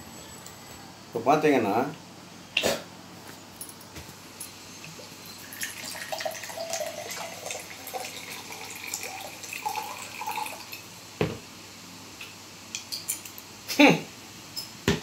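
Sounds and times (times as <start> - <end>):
liquor pouring into glass: 4.4 - 10.9.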